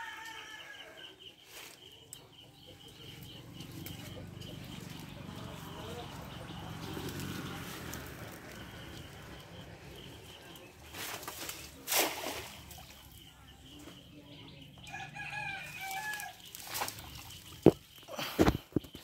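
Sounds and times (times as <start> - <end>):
rooster crowing: 0.0 - 1.1.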